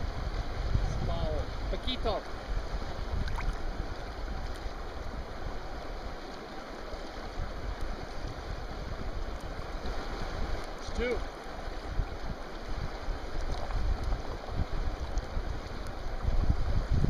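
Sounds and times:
river rushing over rocks: 0.0 - 17.0.

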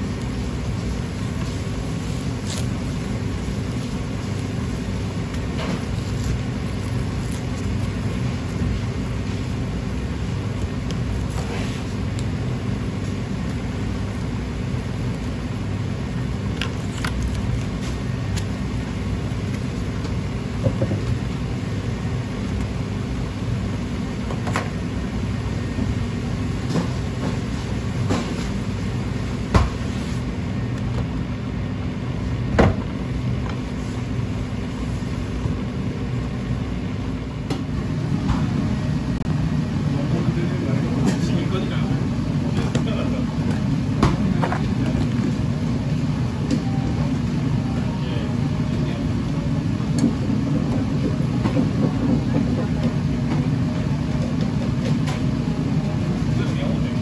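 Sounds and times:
low machinery hum: 0.0 - 57.0
cling film crinkling: 1.5 - 15.4, 16.0 - 19.8.

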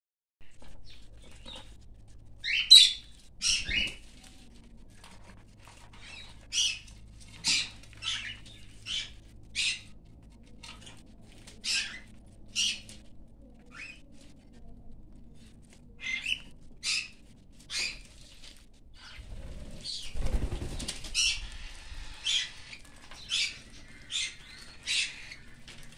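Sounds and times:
faint low hum: 0.4 - 25.9
cockatiels chirping: 0.6 - 1.7, 2.4 - 4.1, 5.9 - 10.0, 10.6 - 13.1, 13.7 - 14.0, 15.4 - 18.4, 19.0 - 25.9.

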